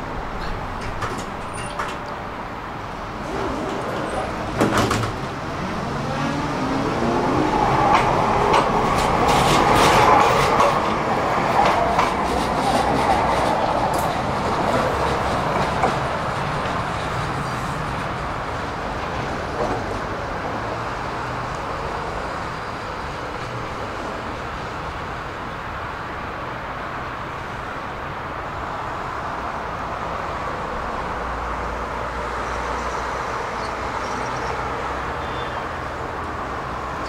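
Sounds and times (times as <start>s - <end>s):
wheels clacking on rails: 0.0s - 25.9s
tram clunk: 0.0s - 26.0s.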